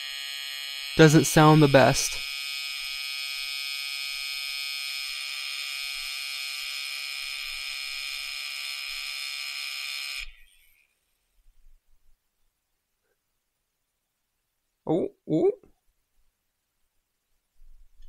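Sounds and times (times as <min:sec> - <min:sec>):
watch demagnetizer buzzing: 0:00.0 - 0:11.0.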